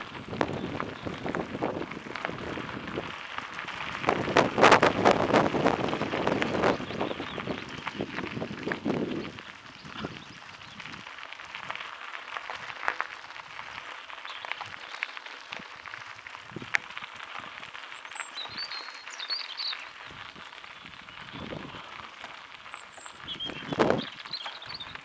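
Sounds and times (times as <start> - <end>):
bike tyres rolling on gravel: 0.0 - 25.0
bird chirping: 6.5 - 7.8, 17.9 - 20.1, 22.6 - 25.0.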